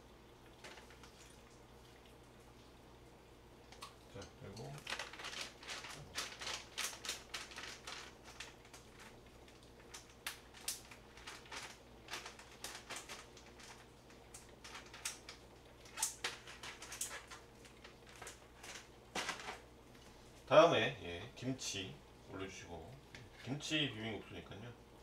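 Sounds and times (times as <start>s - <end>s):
small items clicking and crinkling: 0.6s - 1.2s, 3.7s - 19.7s.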